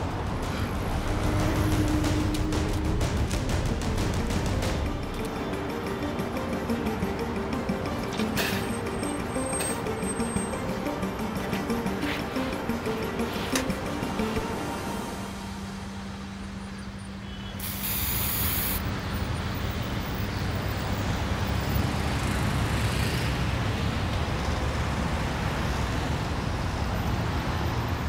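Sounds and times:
traffic rumble: 0.0s - 28.0s
short sharp hiss: 17.6s - 18.8s.

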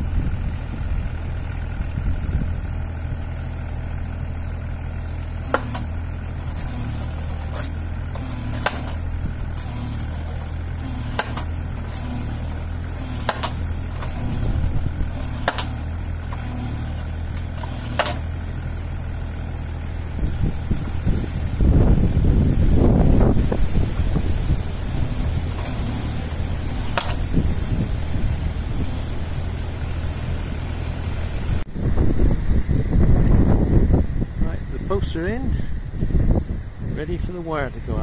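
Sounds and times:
digger diesel engine running: 0.0s - 38.0s
weight banging on fence post: 5.4s - 14.4s, 15.2s - 16.7s, 17.3s - 18.4s, 26.7s - 27.3s.

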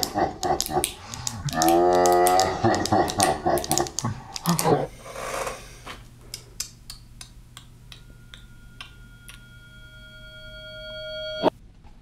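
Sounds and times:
steady ticking: 0.0s - 4.8s
low hum: 6.0s - 11.8s
high sustained tones: 7.8s - 11.6s.

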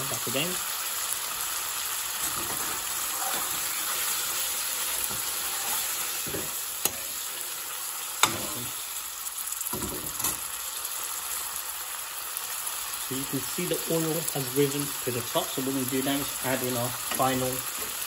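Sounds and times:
curry sizzling in a metal pan: 0.0s - 18.0s
metal spoon scraping a pan: 2.2s - 7.5s, 8.2s - 8.7s.

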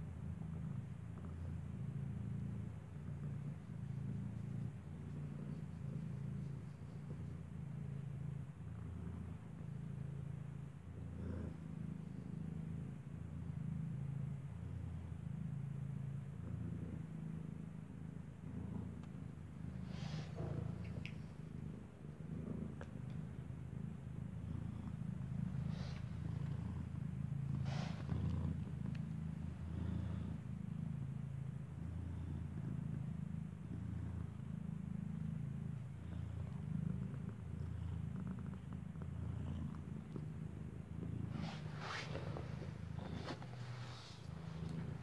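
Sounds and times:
cat purring: 0.0s - 45.0s
soft rustles: 19.7s - 22.0s, 22.6s - 30.4s, 41.0s - 45.0s.

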